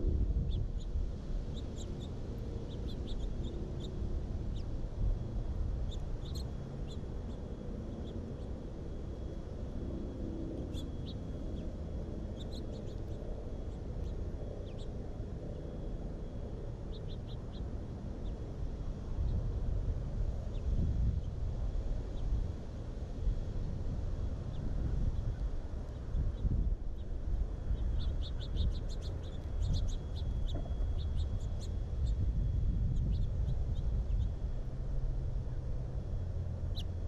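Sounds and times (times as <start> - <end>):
steady low rumble: 0.0 - 37.0
songbirds chirping: 0.4 - 4.8, 5.4 - 8.6, 10.6 - 15.7, 16.5 - 18.6, 24.3 - 37.0.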